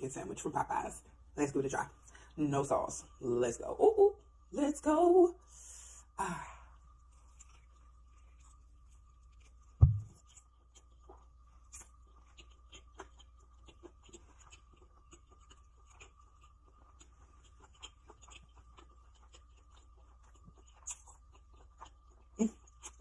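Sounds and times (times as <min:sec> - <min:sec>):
faint steady hum: 0:00.0 - 0:23.0
person chewing crispy food: 0:06.8 - 0:23.0
loud low thump: 0:09.8 - 0:10.1.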